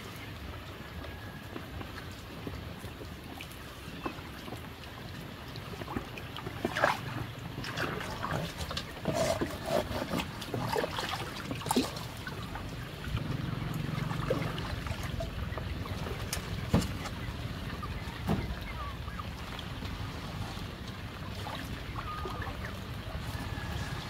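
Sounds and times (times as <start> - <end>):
muddy water splashing and sloshing: 0.0 - 24.0.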